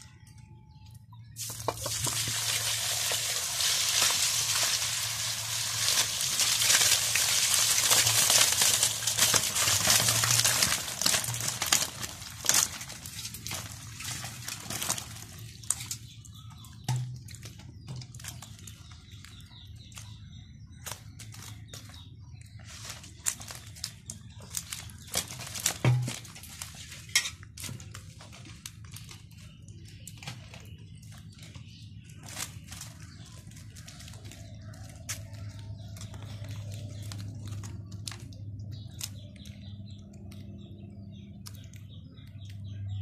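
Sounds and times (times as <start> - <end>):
wet fish slapping in colander: 1.4 - 16.0.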